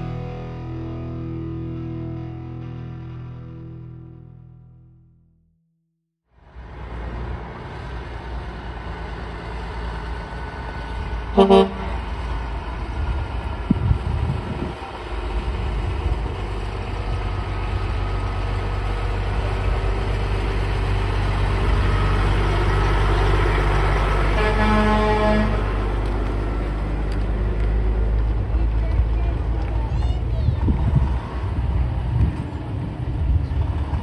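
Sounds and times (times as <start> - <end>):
diesel truck engine running: 6.4 - 34.0
truck horn blast: 11.3 - 12.1, 24.3 - 25.7.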